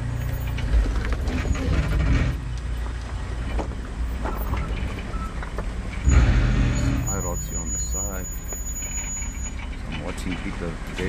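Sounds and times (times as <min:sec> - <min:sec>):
engine running at low revs: 0:00.0 - 0:08.0.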